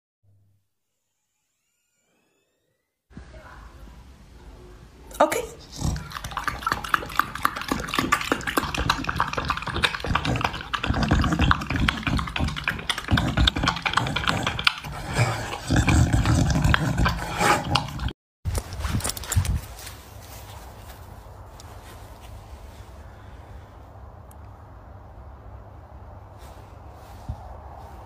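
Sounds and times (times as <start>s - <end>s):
dog nose breathing: 5.6s - 18.1s
dog lapping: 5.6s - 18.2s.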